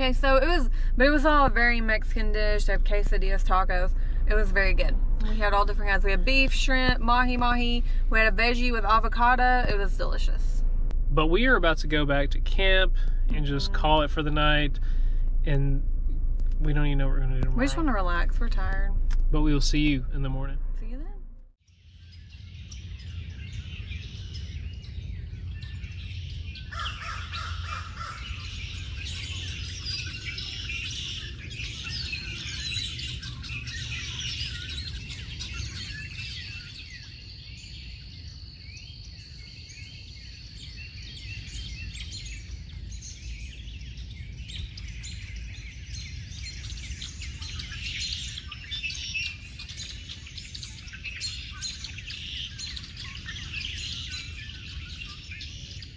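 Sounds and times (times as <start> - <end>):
low steady rumble: 0.0 - 55.9
birds chirping and calling: 11.2 - 15.8, 22.0 - 55.9.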